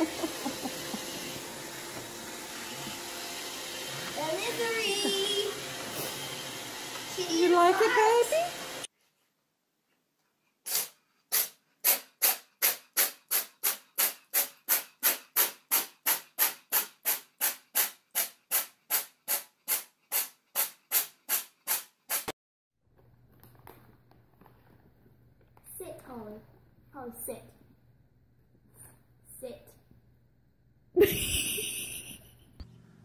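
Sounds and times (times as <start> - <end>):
cat hissing in short puffs: 10.7 - 13.8.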